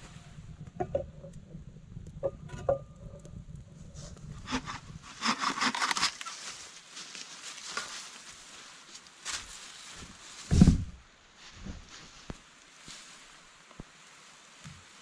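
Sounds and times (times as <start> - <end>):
dry wood crackling and snapping: 0.6 - 11.0.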